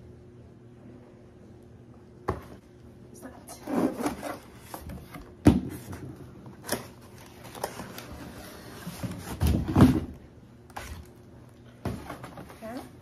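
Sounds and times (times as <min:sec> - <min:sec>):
cardboard packaging rustling: 0:03.9 - 0:10.1.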